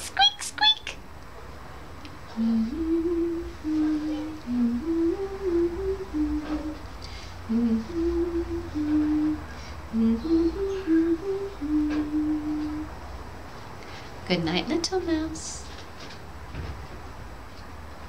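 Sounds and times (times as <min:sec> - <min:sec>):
woman humming a tune: 0:02.3 - 0:13.0.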